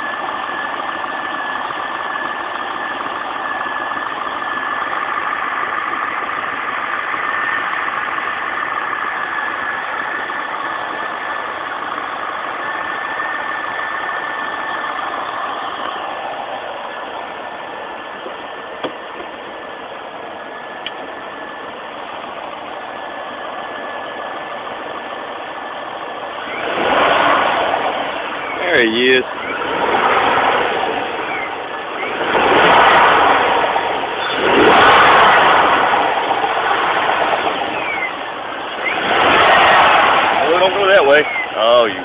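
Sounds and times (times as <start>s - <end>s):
car engine idling: 0.0s - 42.0s
steady whine: 0.0s - 42.0s.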